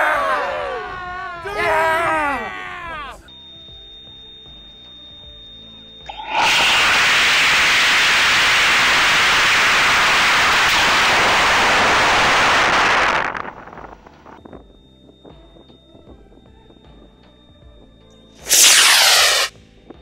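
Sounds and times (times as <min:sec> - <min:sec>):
rocket motor rushing roar: 0:06.1 - 0:13.8, 0:18.4 - 0:19.5.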